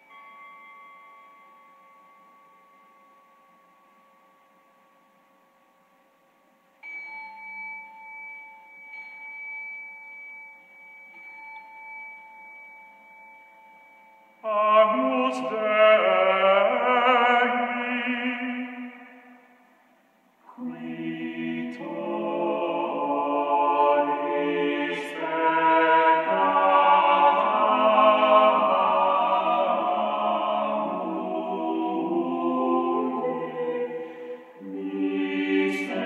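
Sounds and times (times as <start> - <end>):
bell ringing: 6.8 - 14.5
voices singing: 14.4 - 19.4, 20.5 - 36.0.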